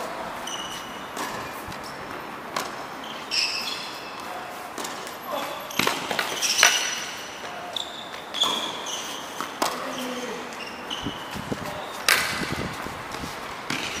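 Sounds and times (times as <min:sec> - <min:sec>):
sneaker squeaks: 0:00.0 - 0:14.0
tennis ball bouncing on hard court: 0:00.4 - 0:05.1, 0:05.7 - 0:10.2, 0:12.0 - 0:14.0
racket hitting ball: 0:00.7 - 0:03.0, 0:04.2 - 0:07.5, 0:12.0 - 0:12.6, 0:13.2 - 0:14.0.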